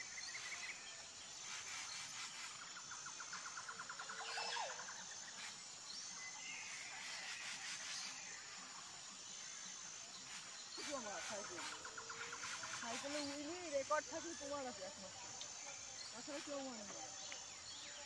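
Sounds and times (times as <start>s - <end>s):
birds chirping: 0.0s - 18.0s
branches rustling: 10.2s - 17.6s.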